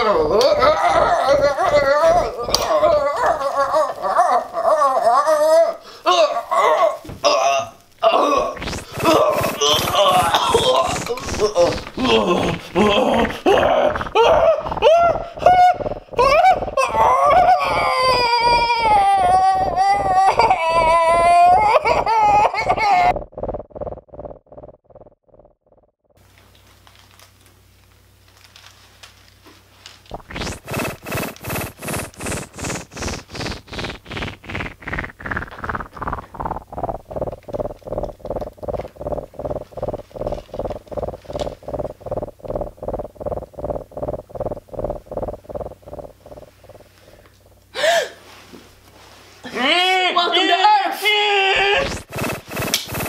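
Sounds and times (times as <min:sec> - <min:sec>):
fast even pulsing: 0:00.0 - 0:04.7, 0:08.3 - 0:25.9, 0:30.1 - 0:47.6, 0:51.6 - 0:53.0
high wavering wailing cry: 0:00.1 - 0:07.0, 0:13.4 - 0:23.0.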